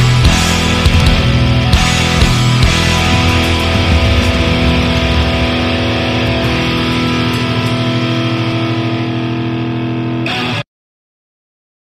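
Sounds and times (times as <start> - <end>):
deep bass: 0.0 - 10.0
electric guitar chord ringing: 0.0 - 10.6.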